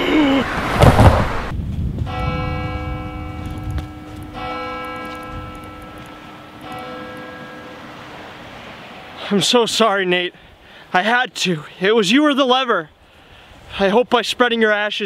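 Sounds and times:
loud crash: 0.4s - 3.4s
church bell tolling: 2.1s - 8.2s.

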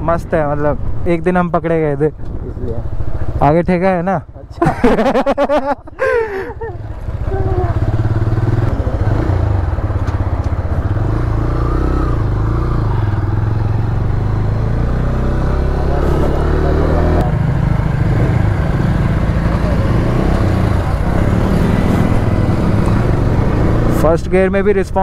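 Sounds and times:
motorcycle engine running: 6.3s - 25.0s.

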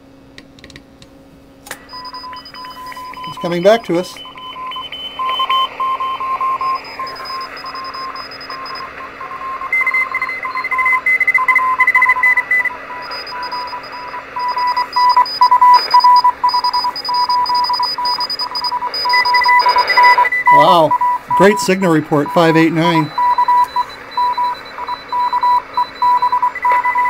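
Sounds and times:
higher-pitched morse signal: 1.8s - 27.0s
morse code tone: 1.8s - 27.0s
radio band hiss: 2.8s - 9.6s, 15.8s - 16.0s, 18.8s - 24.8s.

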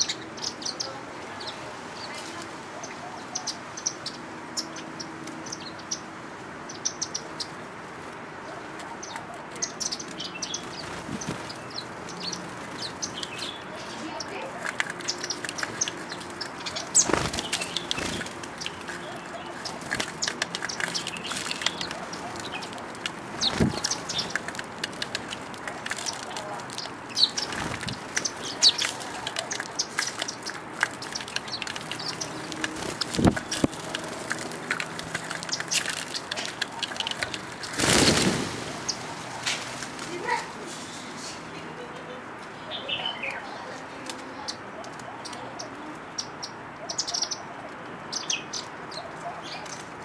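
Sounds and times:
sparrows chirping: 0.0s - 50.0s
wing flutters: 14.5s - 40.6s.

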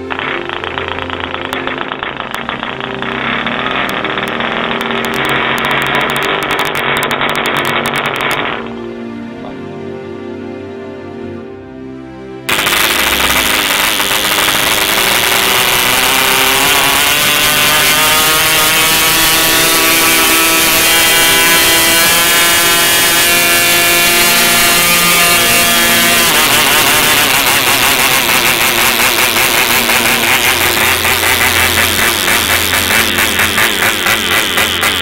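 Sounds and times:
model airplane engine screaming: 0.0s - 8.7s, 12.5s - 35.0s.

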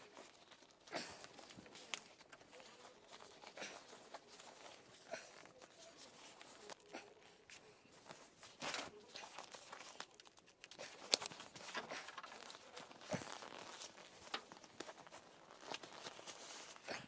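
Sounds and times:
seat cover rustling and tearing: 11.5s - 17.0s.

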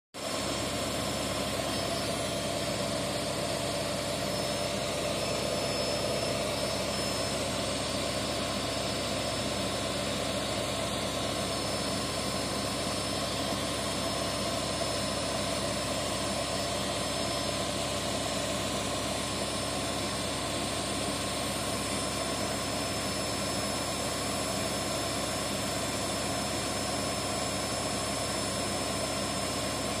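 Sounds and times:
washing machine spinning: 0.2s - 30.0s.

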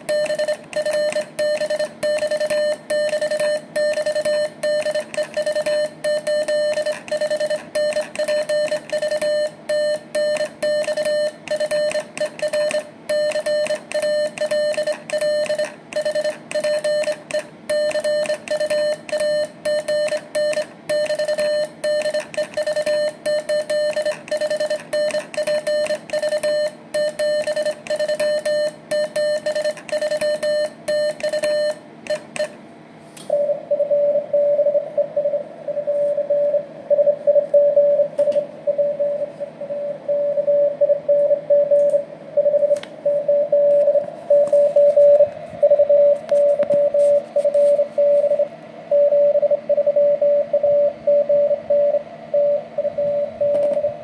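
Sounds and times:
morse code from receiver: 0.0s - 32.6s, 42.4s - 49.4s
telegraph key sidetone beeps: 0.0s - 32.6s.

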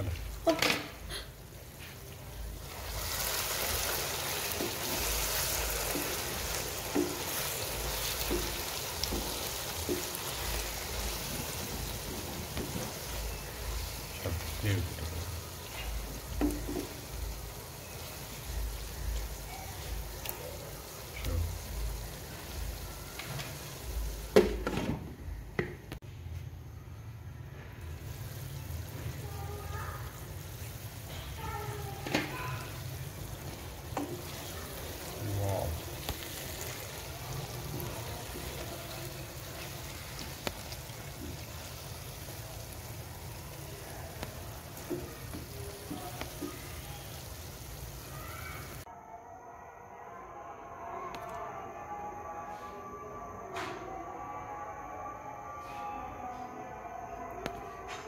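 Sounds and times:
vegetables sizzling in oil: 0.0s - 24.8s, 27.8s - 48.9s.

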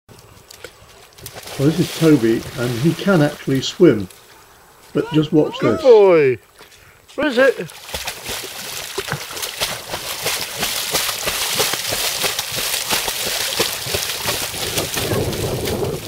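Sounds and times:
dog splashing in water: 1.0s - 3.4s, 7.7s - 16.0s.

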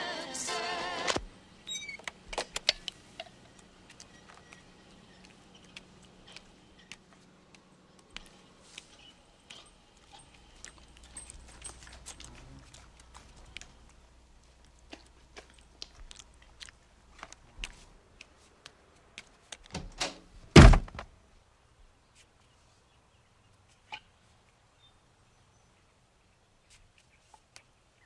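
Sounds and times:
door thumps: 19.7s - 21.1s.

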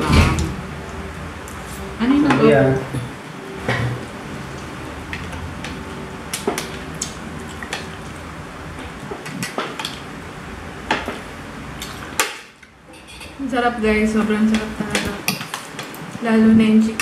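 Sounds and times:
cutlery scraping on plates: 11.8s - 13.4s.

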